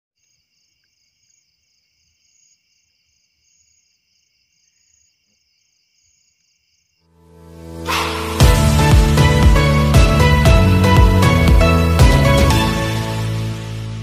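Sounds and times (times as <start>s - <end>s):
night insects trilling: 0.2s - 7.1s.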